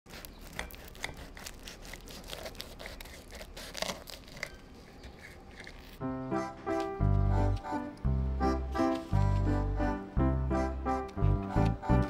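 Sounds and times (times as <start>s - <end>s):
knife sawing through toasted bread: 0.1s - 5.7s
bread crust crunching: 0.1s - 6.0s.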